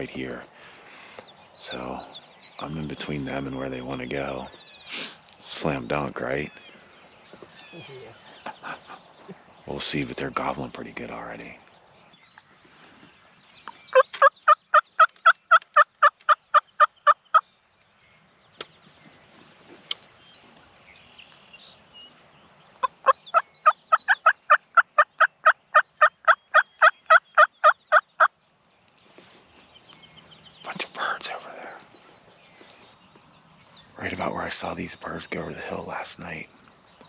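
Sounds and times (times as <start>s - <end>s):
turkey call yelping: 22.8s - 28.0s.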